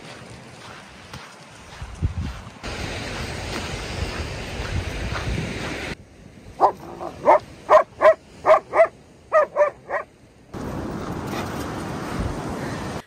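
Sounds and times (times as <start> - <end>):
steady rushing noise: 0.0 - 9.0
dog barking: 6.6 - 10.1.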